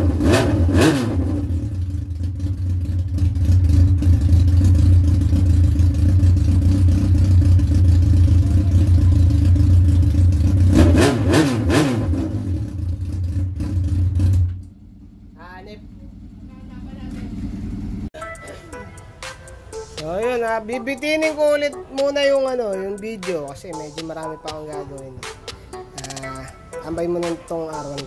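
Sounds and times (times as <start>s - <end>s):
motorcycle engine running: 0.0s - 18.2s.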